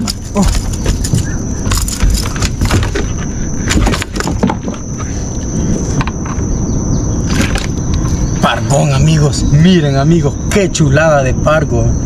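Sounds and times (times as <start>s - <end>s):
metal hooks rattling: 0.0s - 4.6s.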